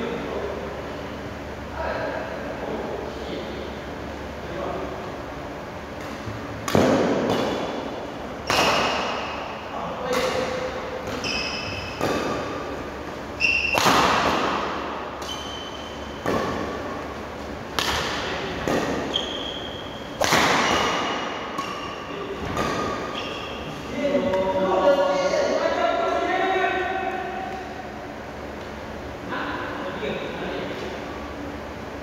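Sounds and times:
racket hitting shuttlecock: 5.9 - 12.8, 13.4 - 24.4
shoes squeaking on wooden floor: 23.1 - 23.8.

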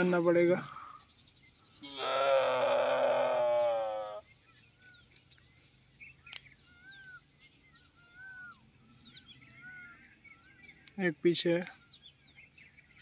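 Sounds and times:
faint bird chirps: 0.0 - 13.0
camel calf bellowing: 1.8 - 4.2.

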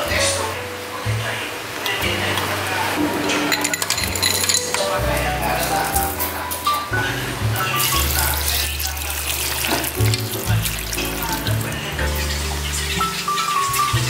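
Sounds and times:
background music: 0.0 - 14.0
water pouring into a pot: 7.5 - 14.0.

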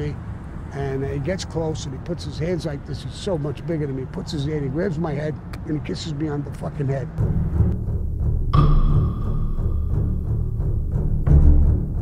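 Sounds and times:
heavy low pulse: 7.2 - 12.0
held high note: 8.6 - 10.8.

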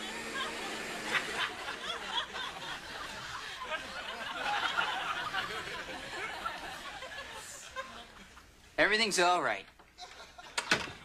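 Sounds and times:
audience laughter: 0.0 - 8.5.

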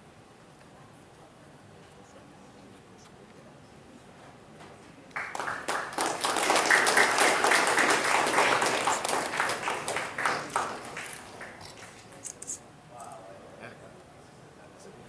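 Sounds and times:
room full of people applauding: 5.1 - 12.2.

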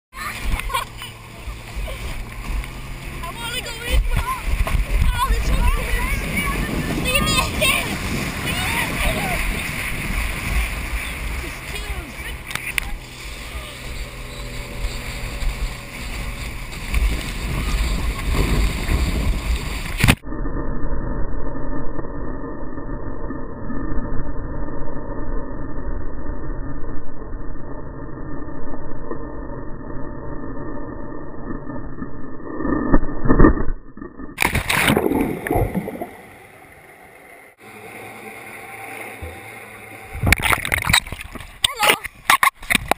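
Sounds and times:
water rushing and splashing: 0.1 - 20.2, 34.4 - 42.9
muffled underwater hush: 0.2 - 20.2, 34.4 - 42.9
wind buffeting: 0.2 - 20.2
heavy low rumble: 0.2 - 42.9.

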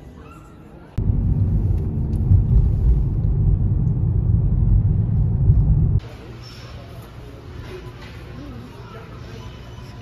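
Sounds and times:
car driving heard from inside: 1.0 - 6.0.

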